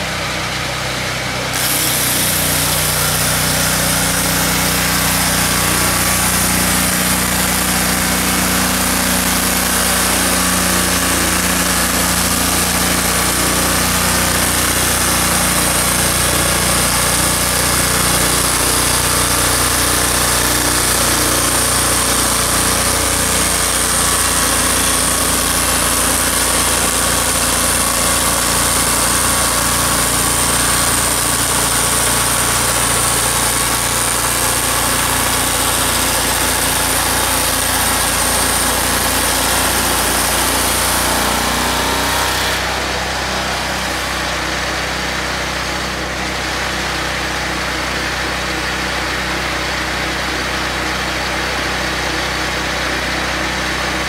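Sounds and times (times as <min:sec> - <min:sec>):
sawmill engine running: 0:00.0 - 0:54.0
saw blade hissing in wood: 0:01.5 - 0:44.3.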